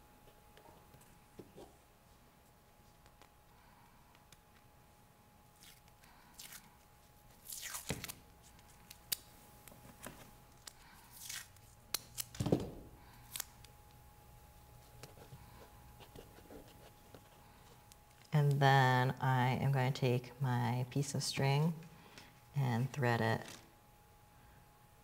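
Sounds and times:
masking tape ripping: 5.5 - 9.3, 10.5 - 12.4, 13.2 - 13.6.

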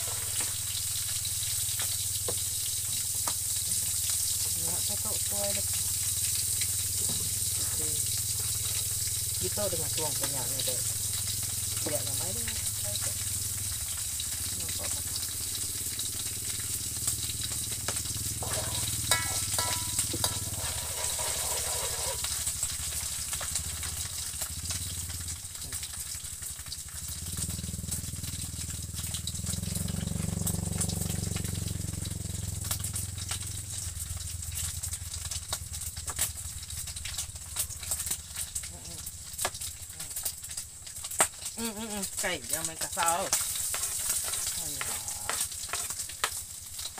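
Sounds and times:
oil sizzling and popping in a wok: 0.0 - 46.9
low hum: 12.6 - 23.2.

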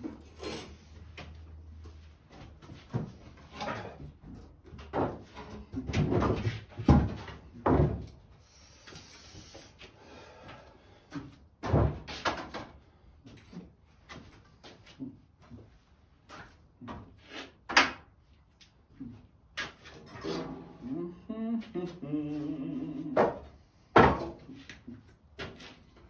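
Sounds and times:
objects knocking and clattering: 2.8 - 8.1.

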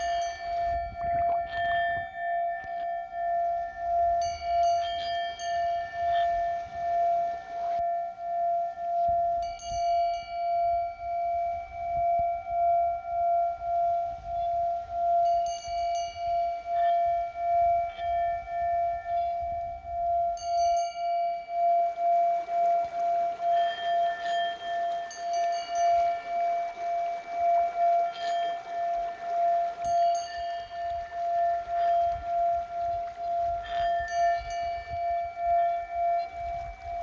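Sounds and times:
singing bowl ringing: 0.0 - 37.0.

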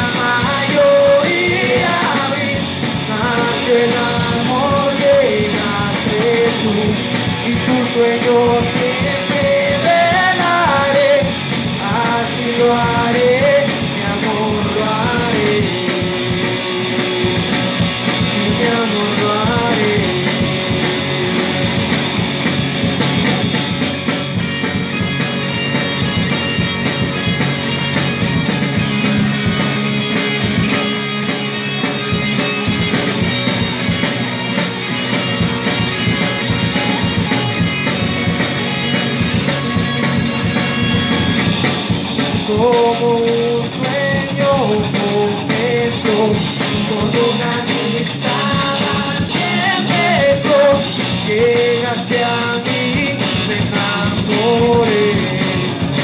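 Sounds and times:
drum kit: 0.0 - 56.0
electric guitars: 0.0 - 56.0
wavering lead melody: 19.2 - 42.3.

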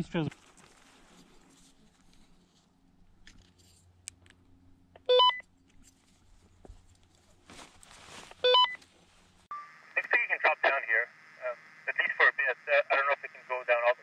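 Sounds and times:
handling rustle: 0.2 - 3.9, 5.6 - 9.5.

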